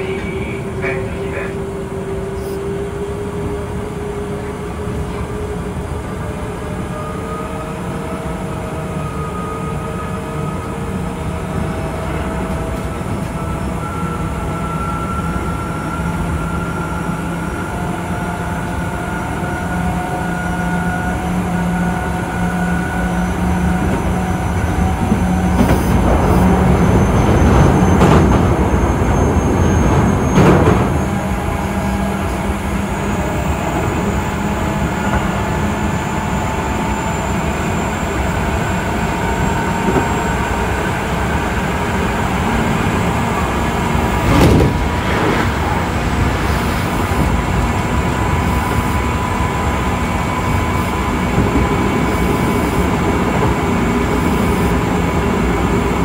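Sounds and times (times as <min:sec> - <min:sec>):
wheel and rail rumble: 0:00.0 - 0:56.0
track clattering: 0:23.0 - 0:37.4, 0:38.6 - 0:56.0.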